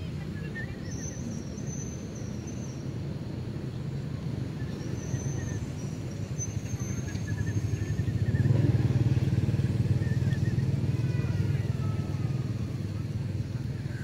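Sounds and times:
engine humming: 5.4s - 14.0s.

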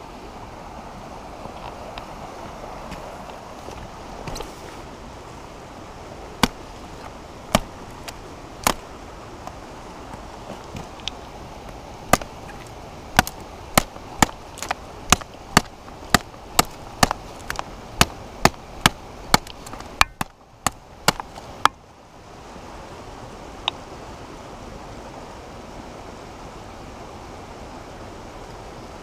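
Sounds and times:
knife chopping branches: 6.4s - 8.9s, 12.0s - 21.8s.

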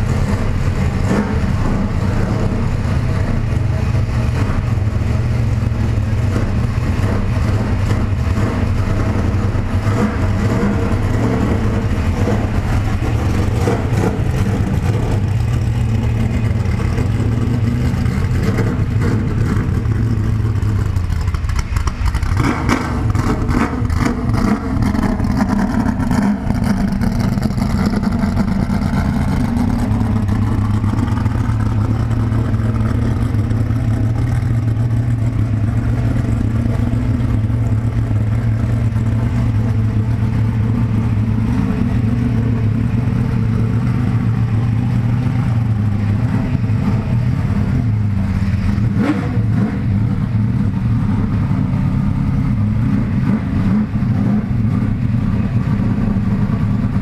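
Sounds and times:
race car engine idling: 0.0s - 57.0s.

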